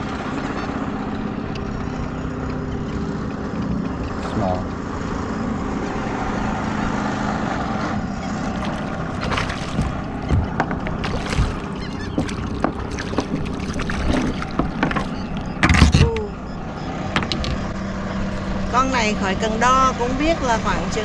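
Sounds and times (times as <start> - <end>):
wind: 0.0 - 21.0
water rushing: 3.0 - 21.0
fish thrashing and splashing: 8.3 - 16.2.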